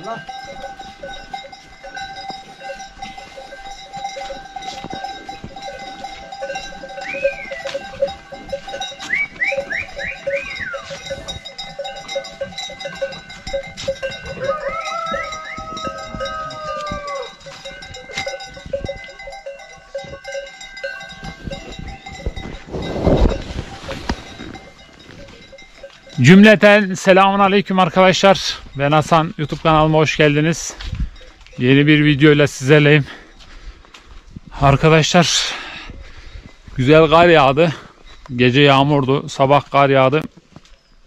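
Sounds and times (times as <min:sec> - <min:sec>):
goat bells ringing: 0:00.0 - 0:41.0
short high calls: 0:07.0 - 0:08.0, 0:09.0 - 0:11.0, 0:14.4 - 0:17.4.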